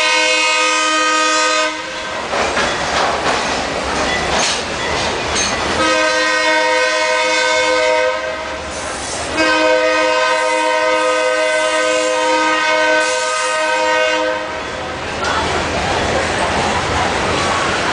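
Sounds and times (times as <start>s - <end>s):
locomotive air horn blasts: 0.0s - 2.2s, 5.8s - 8.7s, 9.3s - 14.6s
freight cars rumbling on track: 0.0s - 17.9s.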